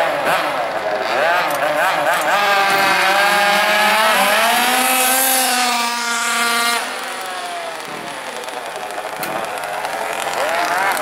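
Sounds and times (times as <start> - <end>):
small engine revving: 0.0 - 11.0.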